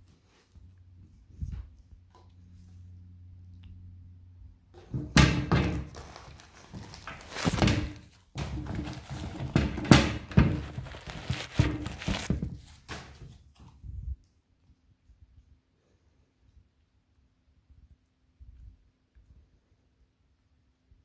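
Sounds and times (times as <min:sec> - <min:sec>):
handling thumps and rubbing: 0:04.8 - 0:13.4.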